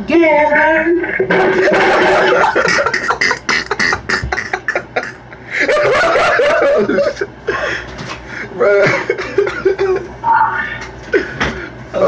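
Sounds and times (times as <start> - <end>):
people laughing hard: 1.2 - 8.0, 8.7 - 10.2.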